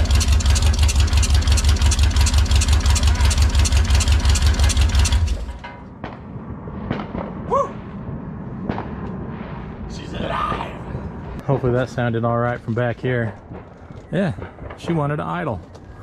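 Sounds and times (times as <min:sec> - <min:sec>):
engine running through open headers: 0:00.0 - 0:05.6.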